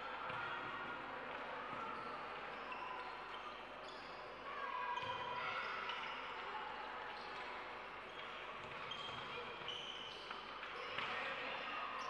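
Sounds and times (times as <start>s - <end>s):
indoor hall background noise: 0.0s - 12.0s
sneakers squeaking: 8.1s - 10.4s.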